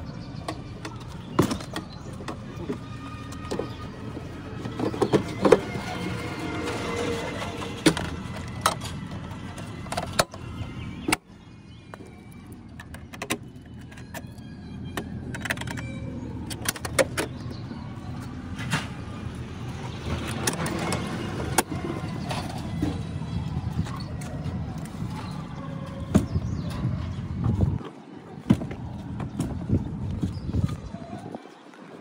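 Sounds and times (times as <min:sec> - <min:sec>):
metal latches and lid clicking: 0:12.7 - 0:17.6.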